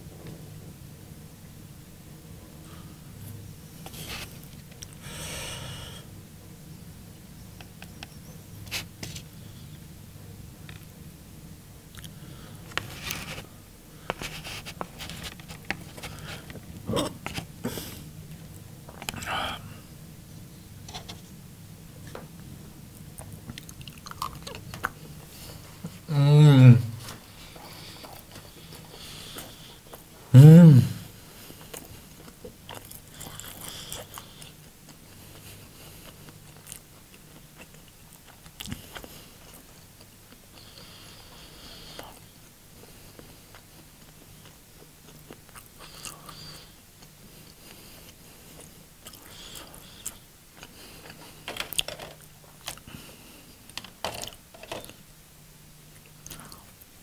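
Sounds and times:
faint low hum: 0:00.0 - 0:57.0
chewing: 0:23.2 - 0:26.0, 0:31.5 - 0:53.0.

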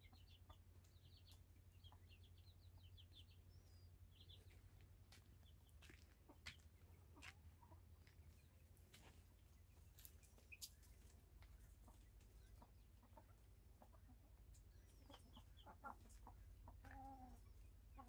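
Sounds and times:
hens clucking: 0:00.0 - 0:03.6, 0:04.2 - 0:18.0.

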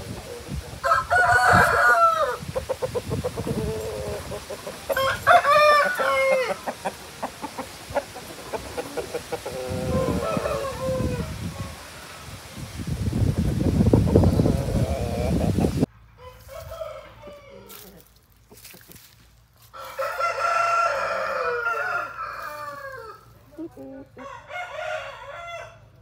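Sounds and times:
rooster crowing: 0:00.8 - 0:02.4, 0:04.9 - 0:06.7, 0:09.5 - 0:12.4, 0:16.2 - 0:18.0, 0:19.6 - 0:23.4, 0:24.2 - 0:26.0.

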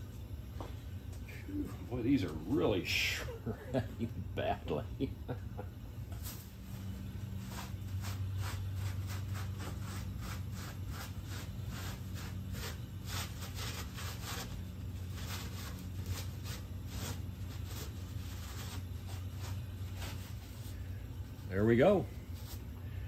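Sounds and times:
steady low hum: 0:00.0 - 0:23.0
paper towel dabbing rough plaster: 0:06.2 - 0:22.7.

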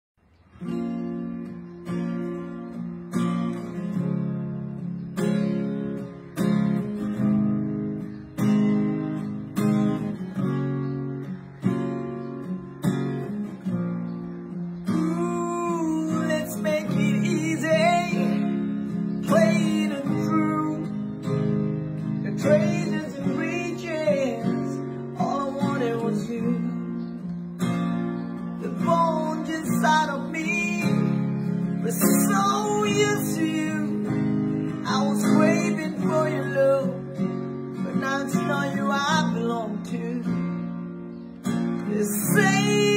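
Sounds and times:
acoustic guitar strumming: 0:00.2 - 0:42.9
man singing: 0:14.9 - 0:21.3, 0:22.2 - 0:26.9, 0:28.6 - 0:40.5, 0:41.8 - 0:42.9.

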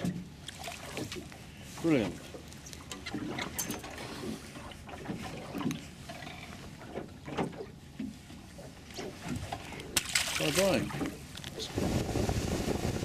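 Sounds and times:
water lapping against boat hull: 0:00.0 - 0:13.0
fishing tackle clicks and knocks: 0:08.9 - 0:11.6.

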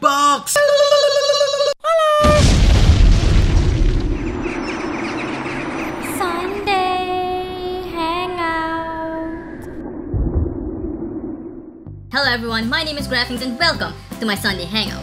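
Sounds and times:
deep rumbling boom: 0:02.3 - 0:12.5.

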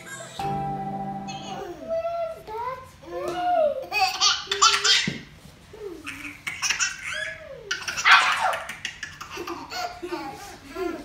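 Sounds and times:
baby laughing: 0:03.1 - 0:05.2, 0:05.8 - 0:11.0.

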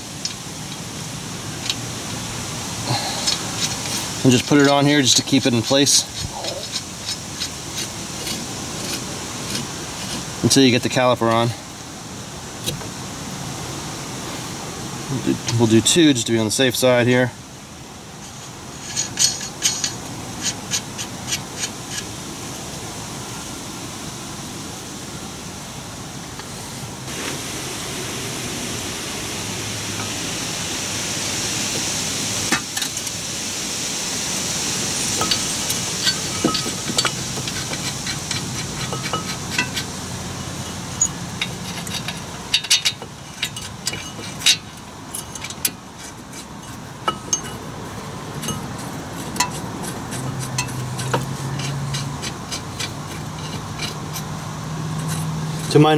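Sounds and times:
soft rushing noise: 0:22.2 - 0:42.0
metal brake parts clinking: 0:35.2 - 0:40.0, 0:40.6 - 0:47.7, 0:48.4 - 0:54.4.

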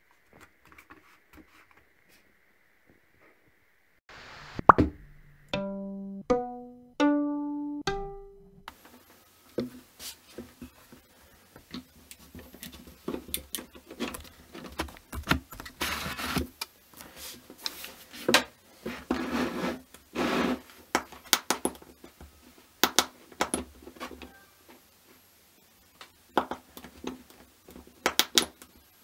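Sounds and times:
rubbing on wooden table: 0:18.9 - 0:20.6.

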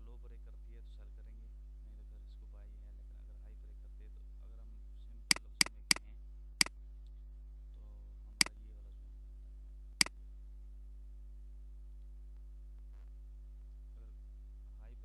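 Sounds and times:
low electrical hum: 0:00.0 - 0:15.0
computer mouse clicks: 0:05.3 - 0:06.0.

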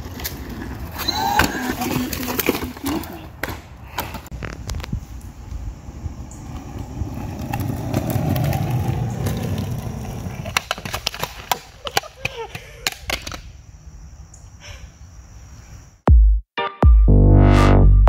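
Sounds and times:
skate wheels rolling on asphalt: 0:00.0 - 0:14.3.

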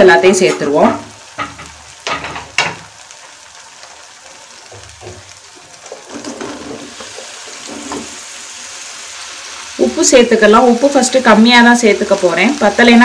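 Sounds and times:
sauce sizzling faintly in pan: 0:00.0 - 0:13.0
mushrooms tumbling into pan: 0:00.3 - 0:08.8.

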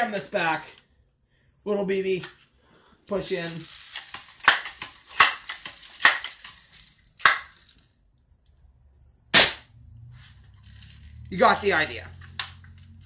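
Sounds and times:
air rifle mechanism clacks: 0:03.7 - 0:07.8
air rifle crack: 0:09.3 - 0:09.7.

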